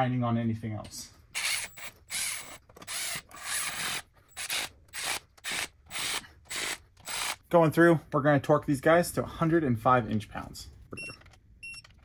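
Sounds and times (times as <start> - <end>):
hand ratchet rasping: 1.4 - 7.4.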